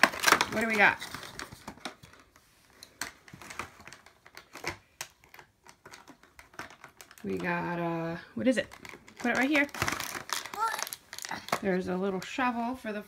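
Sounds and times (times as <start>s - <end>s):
plastic toy pieces rattling: 3.3s - 7.7s, 8.6s - 11.7s.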